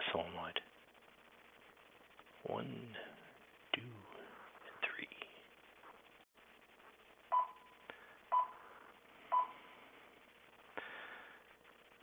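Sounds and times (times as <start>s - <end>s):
short electronic beeps: 7.3s - 8.6s, 9.3s - 9.6s.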